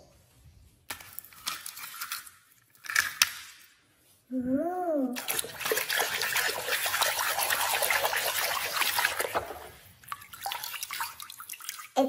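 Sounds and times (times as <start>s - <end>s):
water splashing in a basin: 5.2s - 12.0s.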